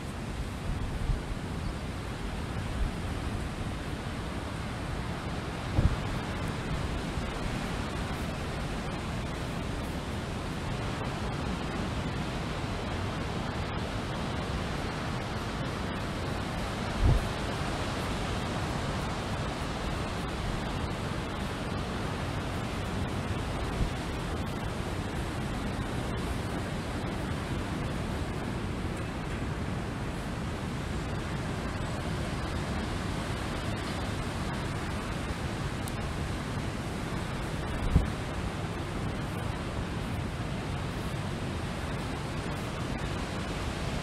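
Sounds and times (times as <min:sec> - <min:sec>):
wind rushing over open ground: 0:00.0 - 0:44.0
wind buffeting microphone: 0:05.6 - 0:09.4, 0:16.9 - 0:17.4.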